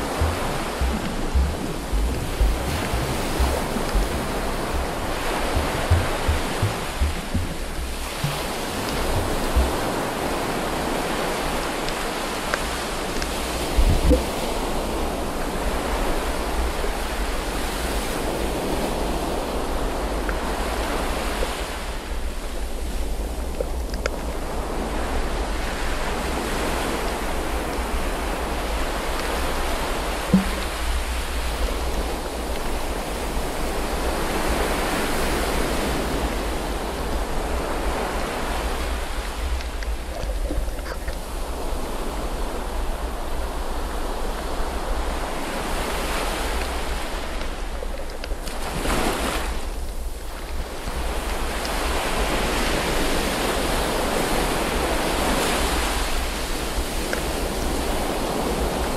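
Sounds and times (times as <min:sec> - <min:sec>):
muffled underwater rushing: 0:00.0 - 0:11.6, 0:27.8 - 0:34.0.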